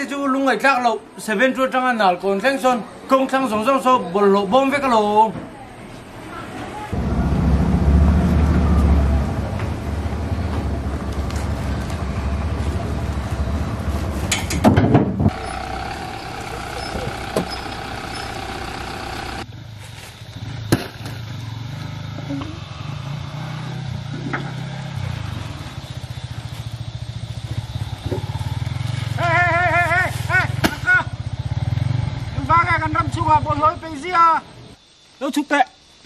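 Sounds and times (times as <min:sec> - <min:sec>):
vehicle engine running: 0:06.9 - 0:14.6, 0:15.2 - 0:33.9.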